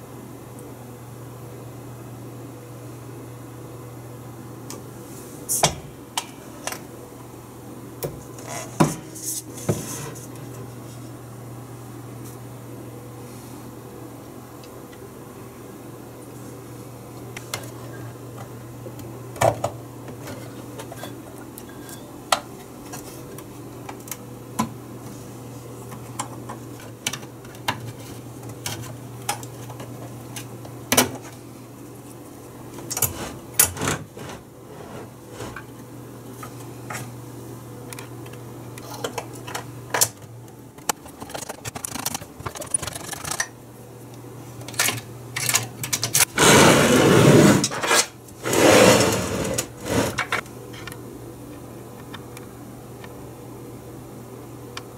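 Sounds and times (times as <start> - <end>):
steady low hum: 0.0 - 54.9
rough scraping handling noise: 33.1 - 35.7, 46.3 - 50.4.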